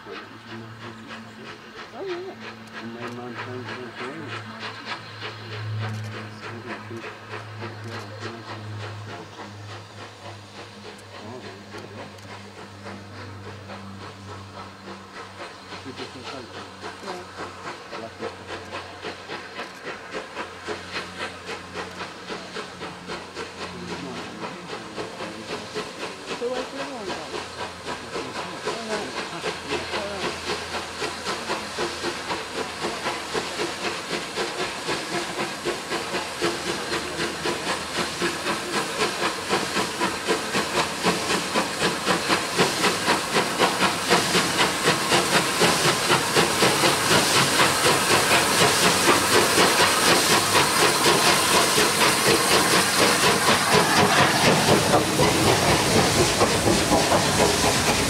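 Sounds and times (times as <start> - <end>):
steam locomotive chuffing: 0.0 - 58.0.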